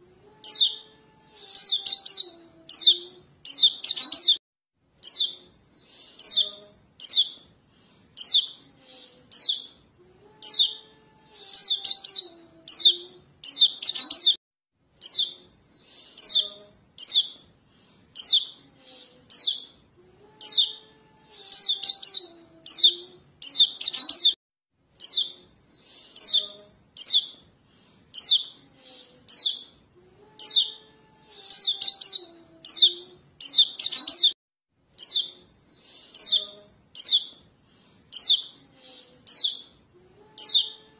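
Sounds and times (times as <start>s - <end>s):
bird begging chirps: 0.4s - 4.4s, 5.0s - 7.4s, 9.3s - 9.8s, 11.5s - 14.4s, 20.4s - 24.4s, 30.4s - 34.4s.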